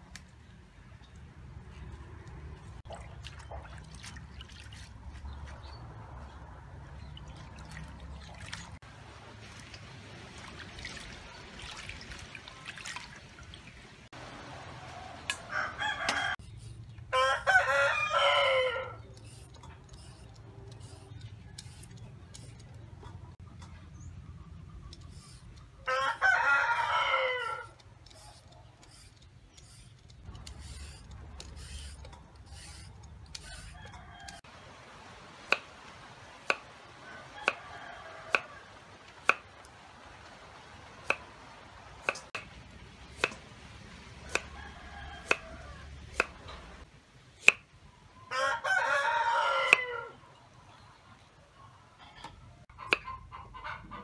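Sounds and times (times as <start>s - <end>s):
rooster crowing: 14.7s - 16.4s, 17.1s - 19.0s, 25.8s - 27.8s, 37.0s - 38.8s, 44.2s - 46.0s, 48.3s - 50.2s
hens clucking: 52.0s - 54.0s.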